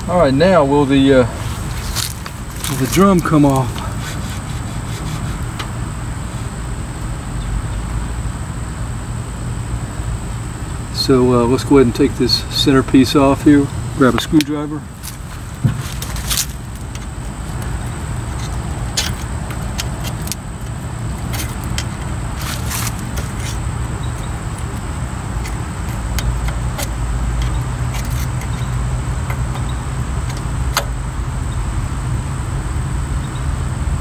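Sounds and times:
steady low rumble: 0.0 - 34.0
screwdriver clicking on metal cap: 16.7 - 30.9.

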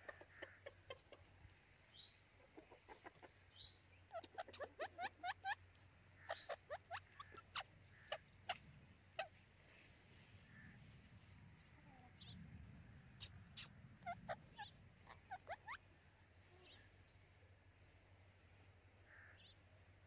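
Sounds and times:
parakeet chirping and chattering: 3.0 - 9.4, 13.1 - 15.9.

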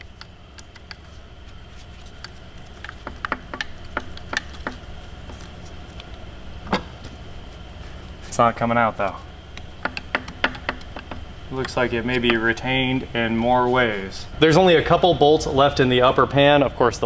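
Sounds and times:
tools clicking and knocking on metal: 2.2 - 4.8, 9.8 - 12.5.

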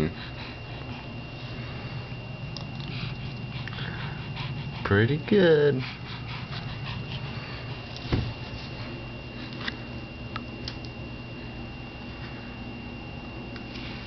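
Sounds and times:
faint high whine: 0.0 - 14.0
dull thump: 8.1 - 8.4.

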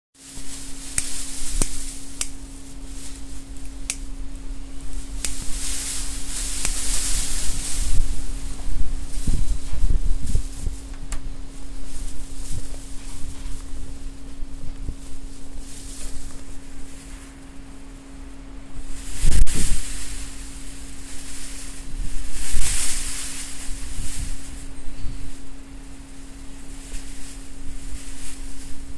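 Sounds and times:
low hum: 0.2 - 28.9
wind buffeting microphone: 6.2 - 15.3.

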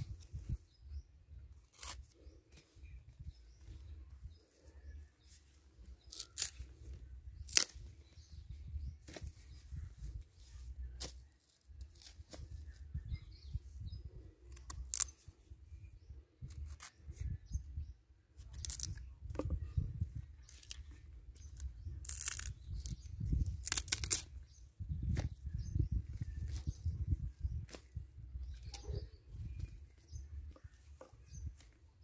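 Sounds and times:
wind rumble on microphone: 0.0 - 1.6, 6.7 - 11.0, 12.2 - 32.0
bananas rustling and crackling: 1.4 - 3.0, 4.4 - 7.9, 14.4 - 15.3, 18.4 - 19.6, 21.5 - 24.5.

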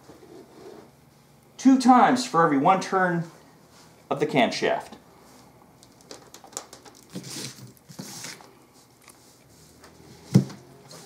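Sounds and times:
rustling scrapes: 0.0 - 1.3, 7.1 - 11.0.

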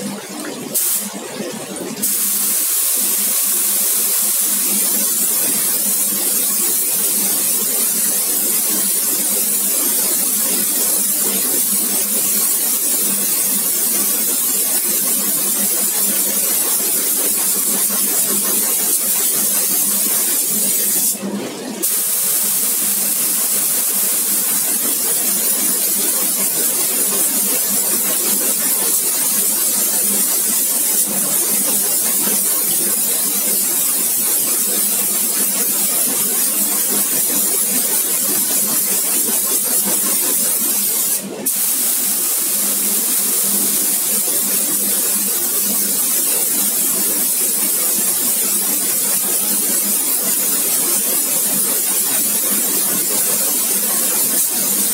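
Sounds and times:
pressure washer spray hissing: 0.8 - 1.1, 2.0 - 21.2, 21.8 - 51.1.

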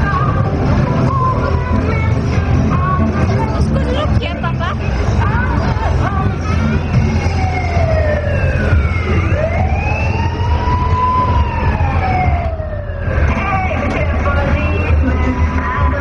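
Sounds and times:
siren wailing: 6.5 - 14.0.

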